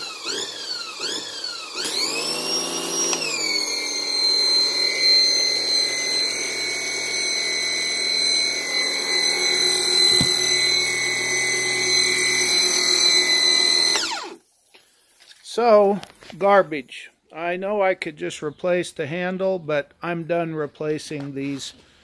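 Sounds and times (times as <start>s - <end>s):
pressure washer motor surging: 0.0s - 14.4s.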